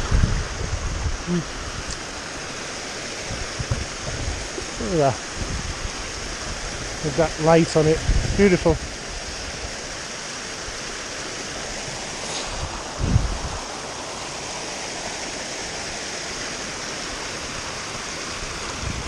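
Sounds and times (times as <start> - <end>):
stream splashing over rocks: 0.0 - 19.0
low thump: 3.3 - 4.3.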